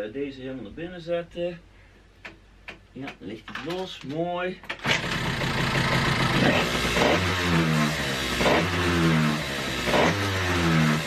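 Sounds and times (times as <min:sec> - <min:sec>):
scooter engine revving: 0:04.8 - 0:11.0.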